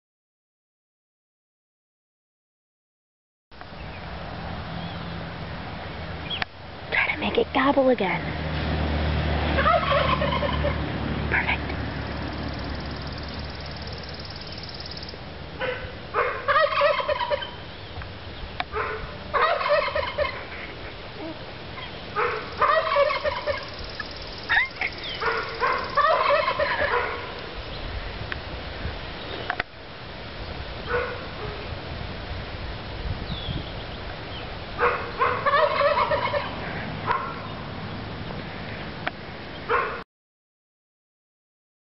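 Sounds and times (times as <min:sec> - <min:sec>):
turkey gobbling: 0:09.6 - 0:10.8, 0:15.6 - 0:17.6, 0:18.8 - 0:20.6, 0:21.2 - 0:23.8, 0:24.5 - 0:27.2, 0:34.8 - 0:37.3.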